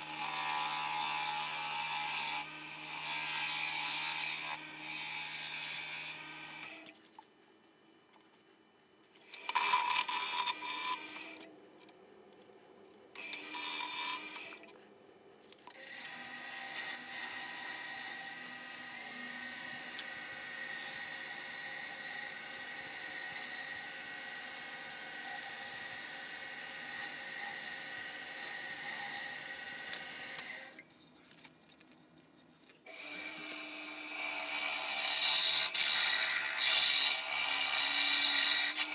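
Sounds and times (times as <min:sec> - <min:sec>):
wood lathe gouge cutting: 0:00.0 - 0:06.8, 0:09.4 - 0:11.4, 0:15.9 - 0:30.7, 0:32.9 - 0:38.9.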